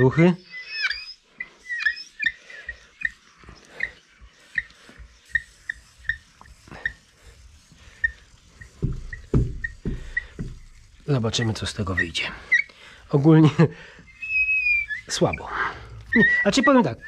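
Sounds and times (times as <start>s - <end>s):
pad squeaking on glass: 0.0s - 17.0s
soft knocks: 8.6s - 10.8s.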